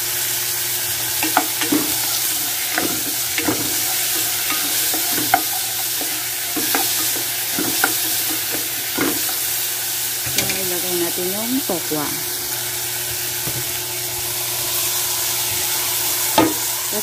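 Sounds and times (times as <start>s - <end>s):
vegetables sizzling in hot oil: 0.0s - 17.0s
spatula scraping and knocking pan: 1.1s - 11.2s, 15.5s - 16.7s.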